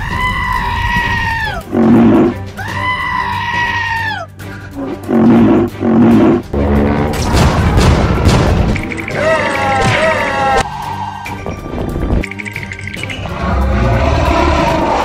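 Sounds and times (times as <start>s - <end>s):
background music with low thumps: 4.4s - 10.6s
high creature cries: 9.1s - 11.2s.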